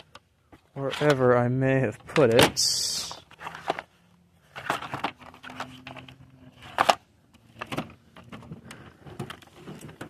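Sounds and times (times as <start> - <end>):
car parts knocking and rattling: 4.5 - 10.0.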